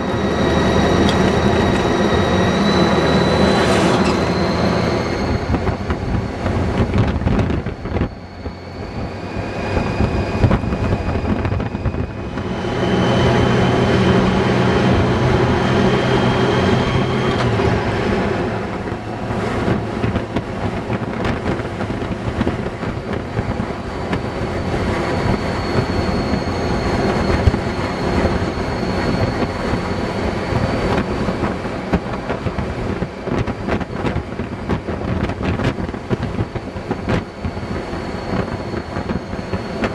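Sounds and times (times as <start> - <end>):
motorcycle engine drone: 0.0 - 39.9
wind and road noise: 0.0 - 39.9.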